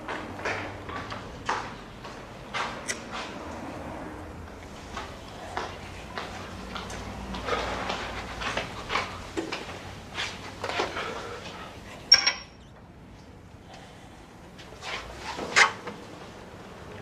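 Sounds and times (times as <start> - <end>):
footsteps: 4.4 - 11.6.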